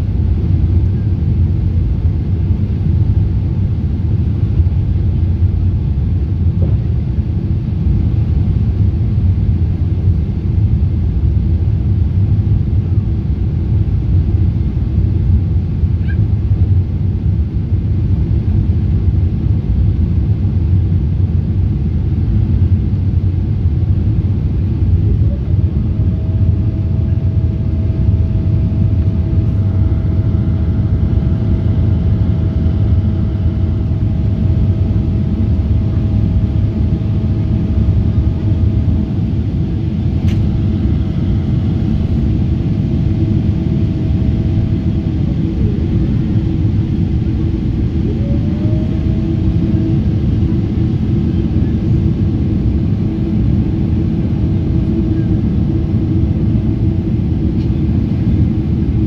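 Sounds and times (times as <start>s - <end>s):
jet engines rumbling in cabin: 0.0s - 59.0s
faint whine: 21.4s - 59.0s.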